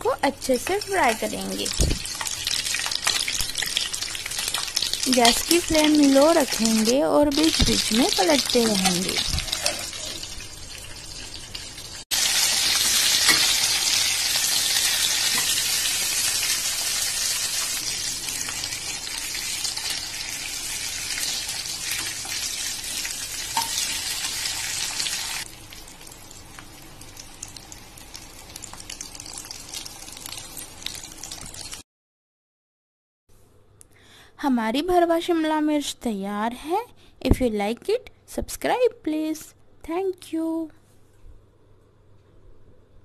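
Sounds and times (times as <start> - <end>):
food sizzling in oil: 0.0 - 31.8.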